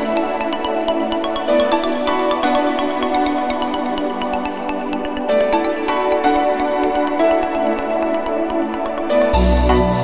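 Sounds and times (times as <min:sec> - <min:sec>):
electronic synth music: 0:00.0 - 0:10.0
deep bass: 0:09.4 - 0:10.0.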